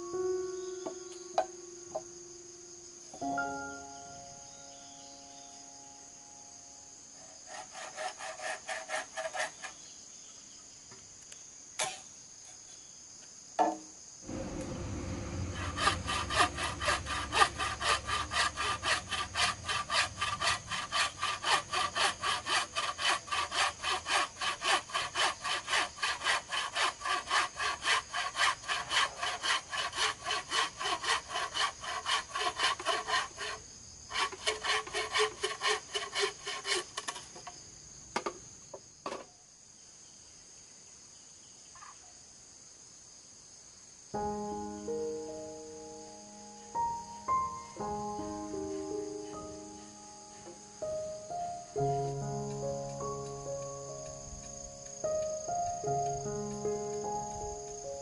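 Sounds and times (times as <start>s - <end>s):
hand saw cutting bamboo: 7.2s - 9.8s, 14.7s - 37.4s.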